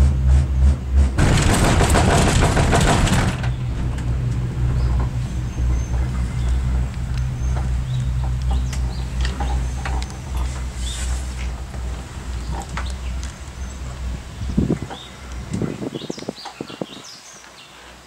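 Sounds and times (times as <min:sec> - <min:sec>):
rushing burst: 0:00.0 - 0:07.9
cable car hum and rumble: 0:00.0 - 0:18.0
bird chirps: 0:04.7 - 0:11.2.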